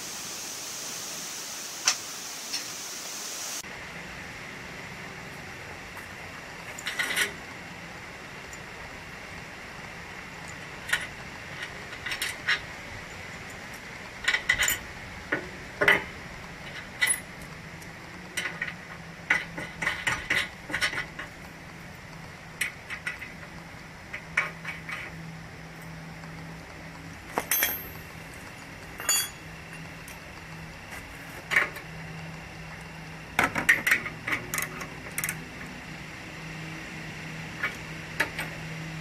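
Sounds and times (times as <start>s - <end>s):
metallic clinks and knocks: 27.3s - 30.3s.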